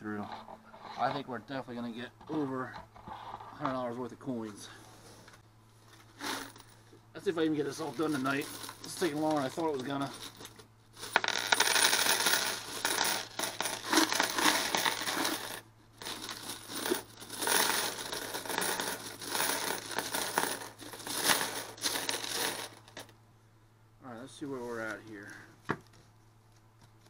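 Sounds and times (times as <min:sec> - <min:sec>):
coins clattering onto wooden table: 0:08.0 - 0:23.1.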